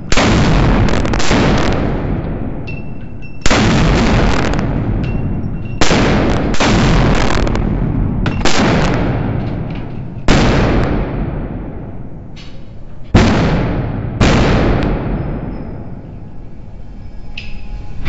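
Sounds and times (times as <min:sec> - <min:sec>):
pistol shots with echoing tail: 0:00.0 - 0:16.0.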